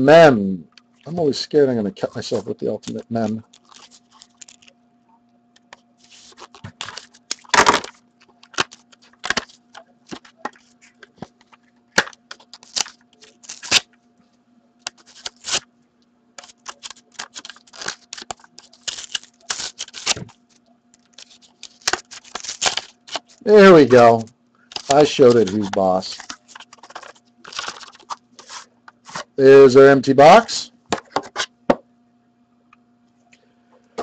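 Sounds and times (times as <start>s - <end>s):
faint steady hum: 0.0s - 34.0s
wrapper crinkling and tearing: 2.9s - 4.7s, 6.1s - 13.9s, 14.9s - 15.7s, 16.4s - 29.2s.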